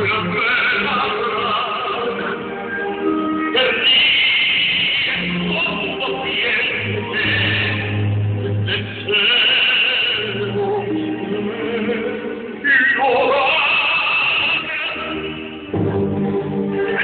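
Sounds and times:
man singing opera: 0.0 - 15.7, 16.8 - 17.0
symphony orchestra: 0.0 - 17.0.

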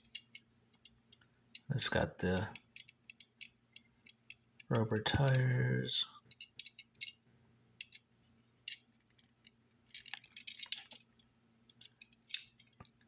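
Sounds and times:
faint low hum: 0.0 - 13.0
toy car handling clicks: 6.3 - 7.2, 8.7 - 12.9.

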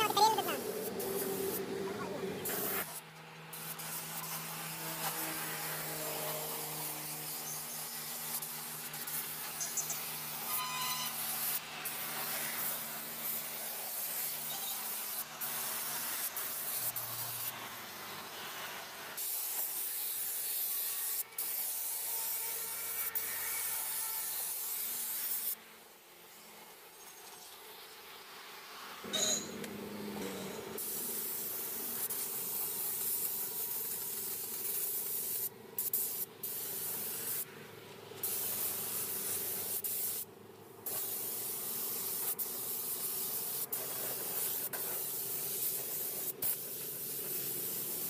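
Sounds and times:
paint spray gun hissing: 0.0 - 1.7, 2.4 - 4.9, 5.6 - 22.1, 30.8 - 37.5, 38.2 - 48.0.

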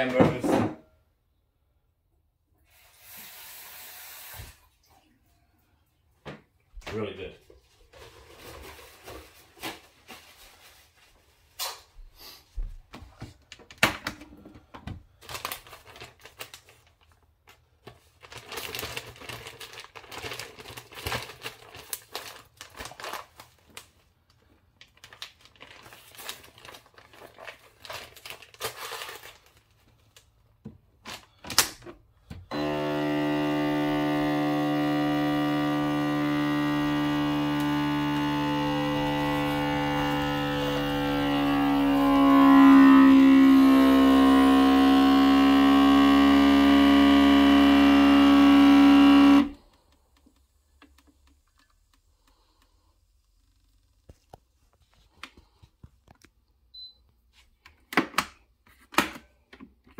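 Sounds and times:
plastic bag crinkling: 15.1 - 31.5
vacuum pump humming: 32.3 - 49.6.

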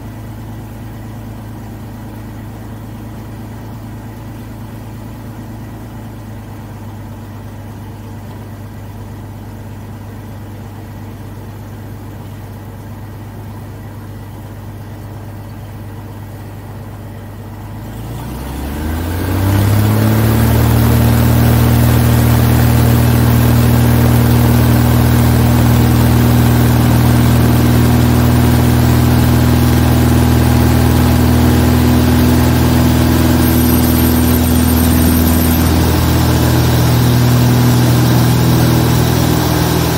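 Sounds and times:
propeller aircraft engine revving: 17.8 - 39.9.

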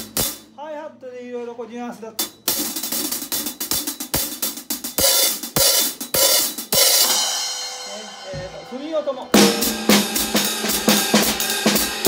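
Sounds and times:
hi-hat cymbals played with drumsticks: 0.0 - 0.6, 2.1 - 12.0
kick drum strokes: 8.2 - 12.0.

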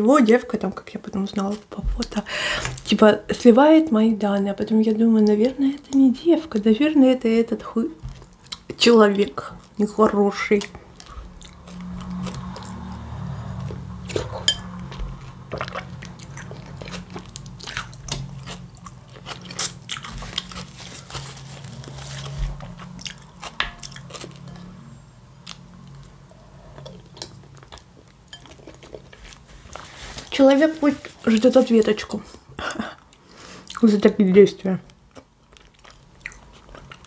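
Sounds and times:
chewing and biting: 10.5 - 24.8, 25.4 - 29.8, 35.1 - 37.0.

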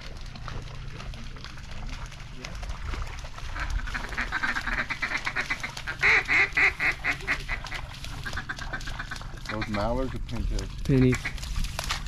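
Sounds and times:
duck quacking: 3.5 - 9.9.

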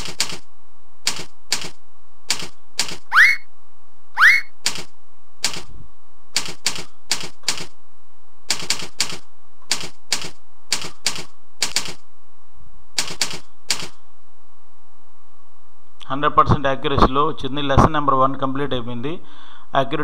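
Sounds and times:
computer keyboard keystrokes: 0.0 - 0.4, 1.1 - 3.1, 4.6 - 5.7, 6.4 - 7.7, 8.5 - 12.0, 13.0 - 14.0
steady hum: 0.0 - 16.5.

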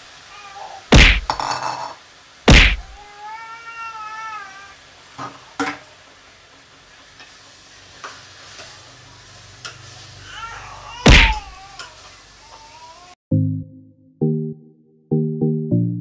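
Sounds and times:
meat sizzling in hot oil: 4.8 - 12.4.

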